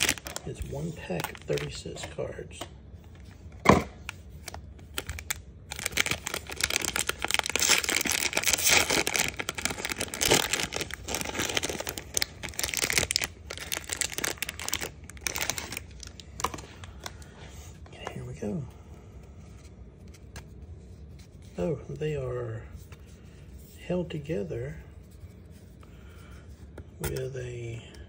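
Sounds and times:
foil wrapper crinkling and tearing: 0.0 - 2.0, 4.0 - 17.2.

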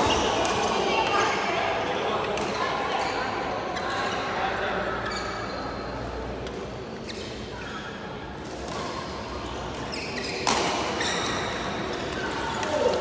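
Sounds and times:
rackets striking shuttlecock: 8.5 - 11.0.

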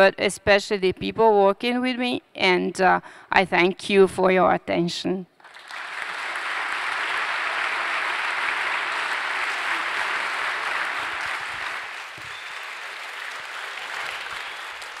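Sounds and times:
audience applauding: 5.4 - 15.0.

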